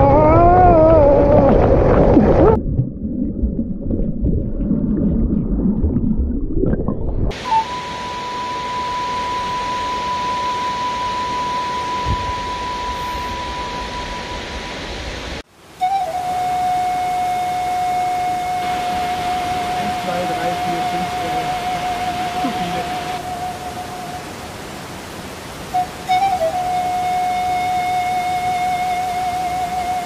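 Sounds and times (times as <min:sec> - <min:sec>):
long wavering cry: 0:00.0 - 0:01.8, 0:07.3 - 0:14.8, 0:15.8 - 0:24.6, 0:25.7 - 0:30.0
waterfall rushing: 0:07.3 - 0:30.0.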